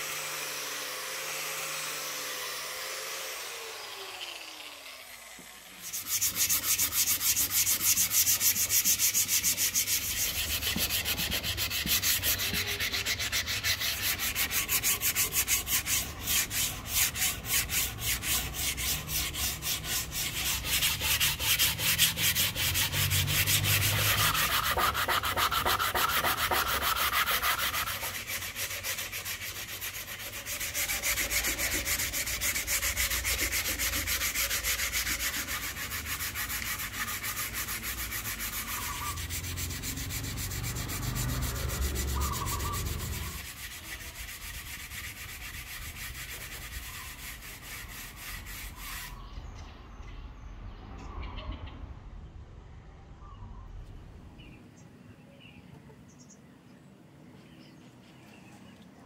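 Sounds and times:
sandpaper rubbing on wood: 5.8 - 49.2.

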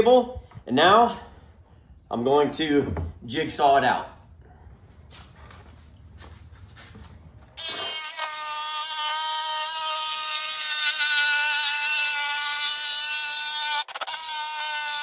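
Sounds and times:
jigsaw cutting plywood: 7.6 - 15.0.

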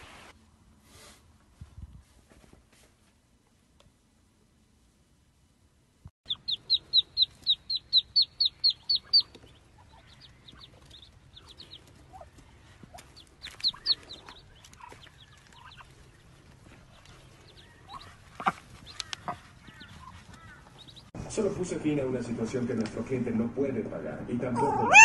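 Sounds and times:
bird calling: 6.3 - 21.1.

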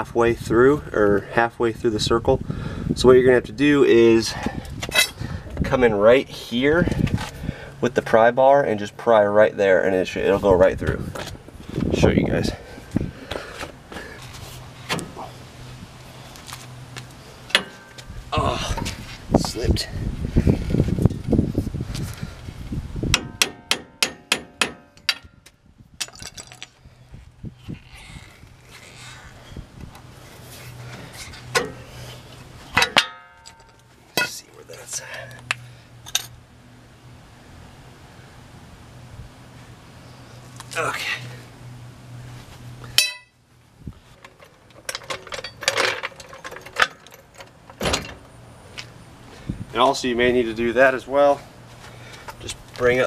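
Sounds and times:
metal clank ringing: 17.5 - 18.1, 32.8 - 34.4, 42.9 - 43.4
hammer striking metal: 23.1 - 25.3, 43.0 - 43.4.

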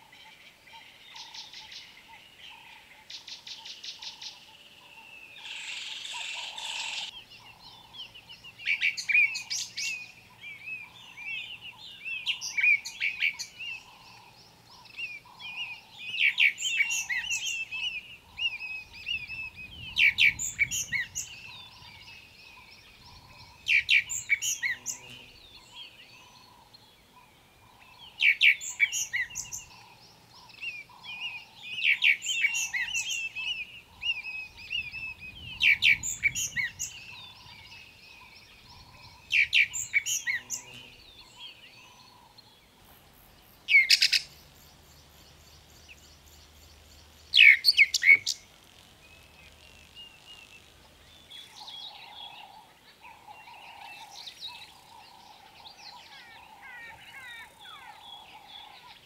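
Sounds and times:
bird whistling song: 15.0 - 21.9, 30.6 - 40.8, 43.7 - 44.3, 47.3 - 48.4.

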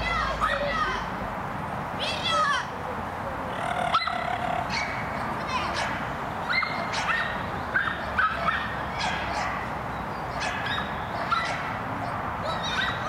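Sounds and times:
small dog yapping: 3.7 - 5.0.

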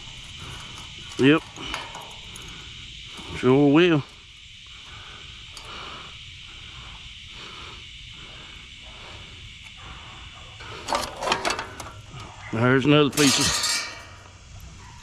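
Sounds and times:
high insect chorus: 0.0 - 15.0
metal clinks: 13.2 - 14.3.

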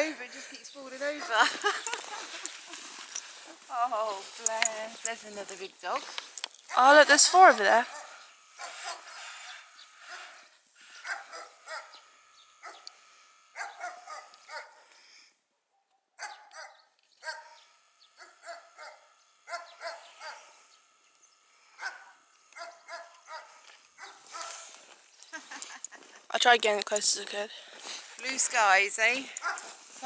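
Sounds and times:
faint dog barking: 7.8 - 9.2, 11.0 - 12.0, 13.6 - 14.9, 16.2 - 17.6, 18.2 - 20.5, 21.8 - 24.7.

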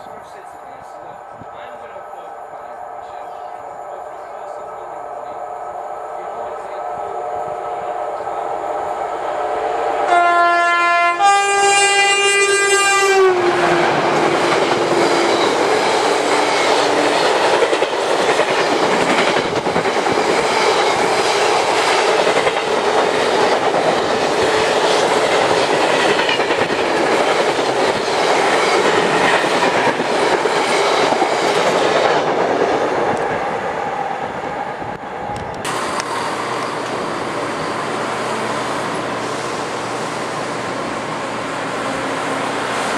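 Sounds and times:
diesel train humming: 0.0 - 42.9
train horn two-tone: 10.1 - 13.8
train wheels rumbling over rails: 11.4 - 42.9.

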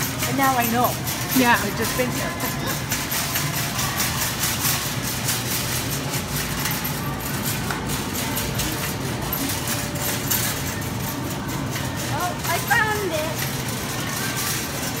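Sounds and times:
shopping cart rattling over tiles: 0.0 - 15.0
steady background hum: 0.0 - 15.0.

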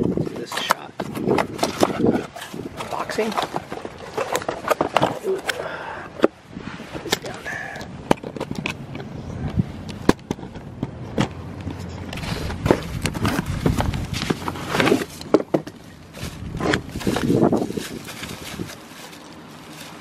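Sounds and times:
cardboard box being opened: 12.1 - 20.0
packaging scraping: 12.1 - 20.0.

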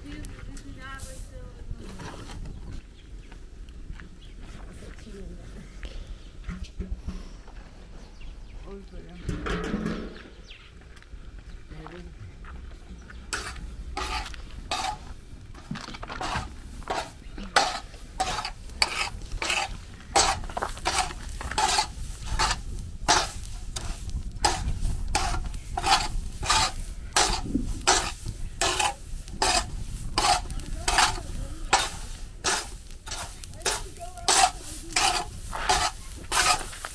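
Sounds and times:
metal spatula scraping griddle: 13.3 - 15.2, 15.9 - 36.9.

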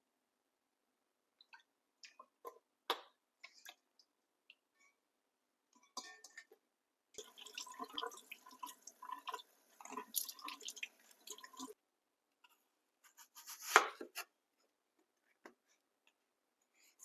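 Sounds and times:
tap water splashing in sink: 7.2 - 11.8
knife cutting onion on board: 13.2 - 14.3.

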